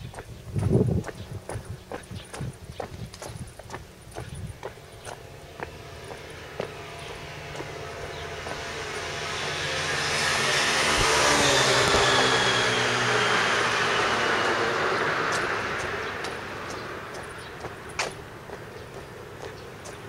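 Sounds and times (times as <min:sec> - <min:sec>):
vehicle passing by: 0:00.0 - 0:20.0.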